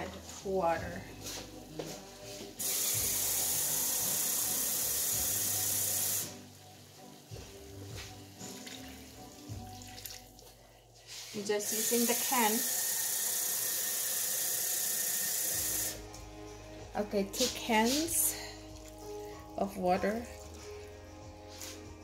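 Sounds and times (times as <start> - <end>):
kitchen tap running: 2.6 - 6.3, 11.6 - 16.0
water pouring into skillet: 8.5 - 10.5.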